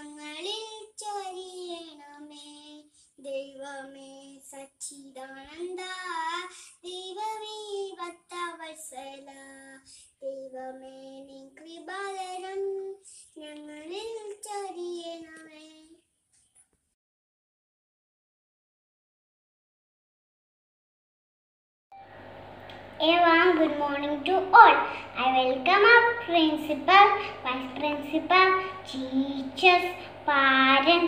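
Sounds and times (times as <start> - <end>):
girl singing solo: 23.0 - 31.0.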